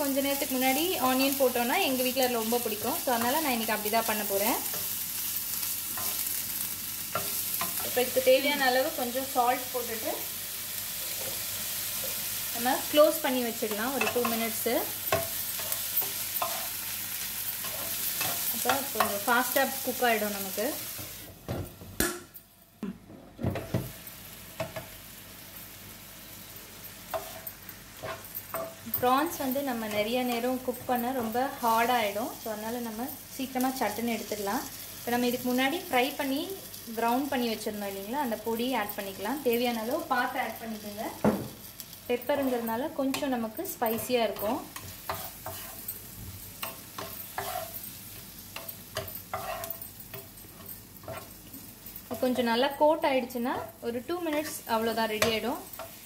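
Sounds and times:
prawns sizzling in oil: 0:00.0 - 0:21.4, 0:23.6 - 0:56.0
spatula scraping and tapping pan: 0:13.6 - 0:19.3, 0:27.1 - 0:29.1, 0:43.9 - 0:51.7.

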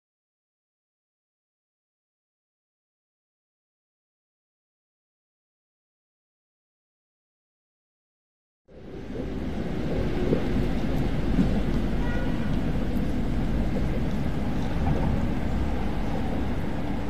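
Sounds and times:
low outdoor rumble: 0:08.7 - 0:17.0.

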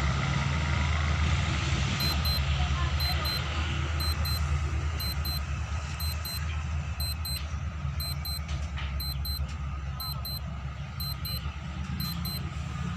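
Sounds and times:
level crossing bell dings: 0:02.0 - 0:02.4, 0:03.0 - 0:03.4, 0:04.0 - 0:04.4, 0:05.0 - 0:05.4, 0:06.0 - 0:06.4, 0:07.0 - 0:07.4, 0:08.0 - 0:08.4, 0:09.0 - 0:09.4, 0:10.0 - 0:10.4, 0:11.0 - 0:11.4, 0:12.0 - 0:12.4.

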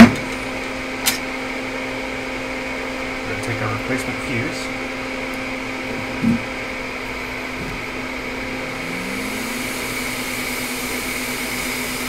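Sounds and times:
fan whir: 0:00.0 - 0:12.0
hot-air rushing hiss: 0:06.2 - 0:12.0.

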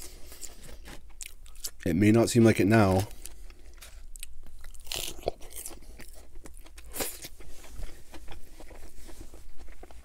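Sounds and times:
chewing: 0:03.1 - 0:10.0
lettuce crunching: 0:03.1 - 0:10.0.

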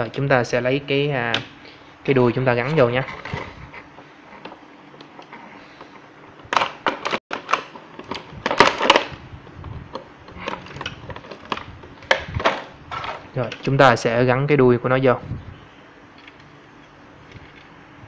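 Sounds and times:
plastic packaging crackling: 0:06.5 - 0:13.8.

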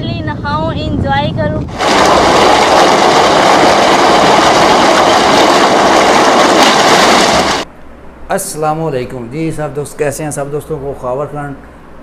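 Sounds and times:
water pouring into concrete tank: 0:01.7 - 0:07.7.

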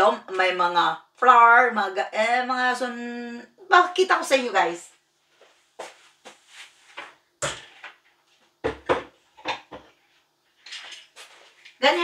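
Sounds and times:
kitchen cupboard opening and closing: 0:07.4 - 0:08.0, 0:08.6 - 0:09.9
knocks and clunks: 0:08.6 - 0:10.0.

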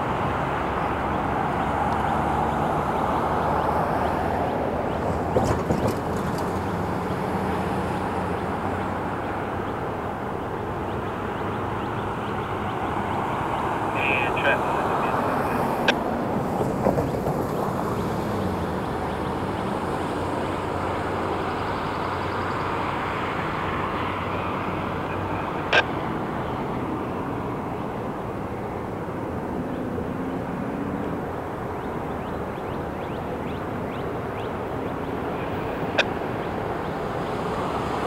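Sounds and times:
diesel locomotive engine drone: 0:00.0 - 0:38.0.

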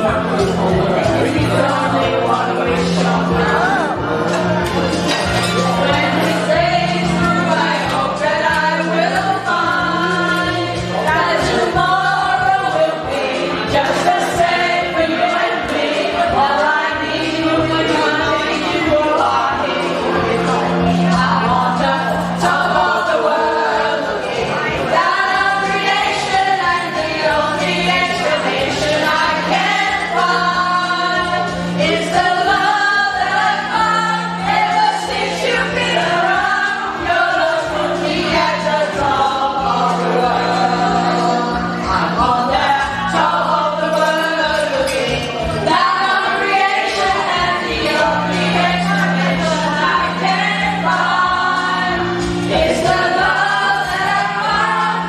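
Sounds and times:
choir singing: 0:00.0 - 0:55.0.

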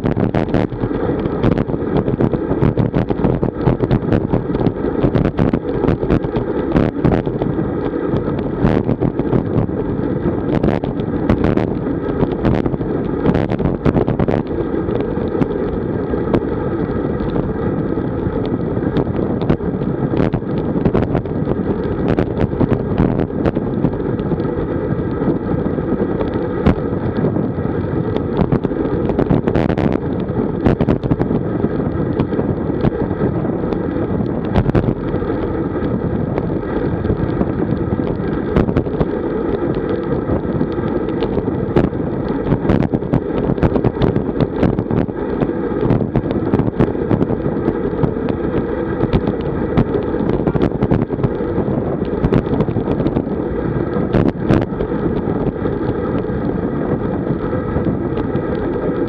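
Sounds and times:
bike rattling clicks and knocks: 0:00.0 - 0:59.0
wind buffeting microphone: 0:00.0 - 0:59.0.

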